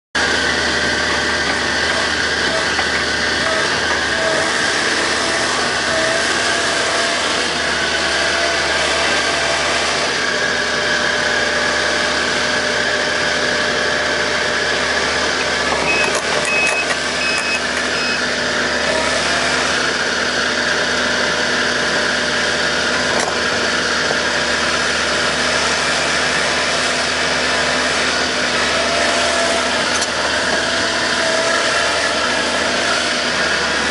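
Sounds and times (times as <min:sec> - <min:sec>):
diesel engine running steadily: 0:00.2 - 0:33.9
short high beeps: 0:15.9 - 0:18.2.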